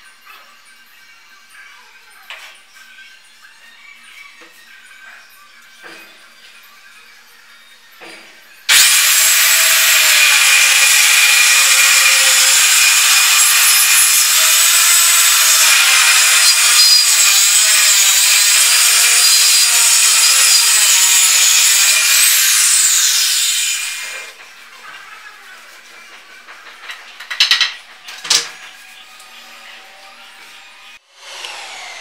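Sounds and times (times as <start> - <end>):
circular saw cutting plywood: 8.7 - 24.4, 28.6 - 32.0
saw motor winding down: 8.7 - 24.4, 28.6 - 32.0.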